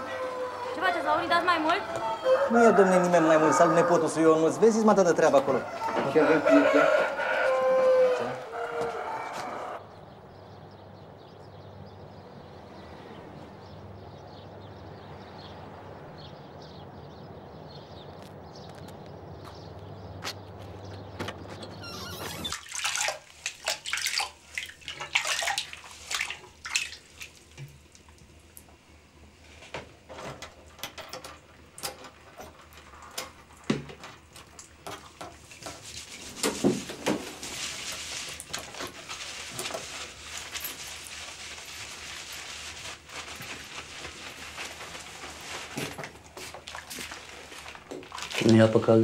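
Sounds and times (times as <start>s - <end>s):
water splashing in a basin: 22.3s - 28.6s, 45.3s - 48.8s
hands rubbing lather through hair: 35.6s - 48.7s.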